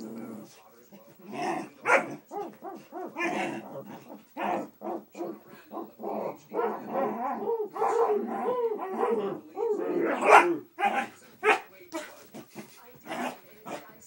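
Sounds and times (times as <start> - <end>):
dog barking and whining: 1.8 - 11.6.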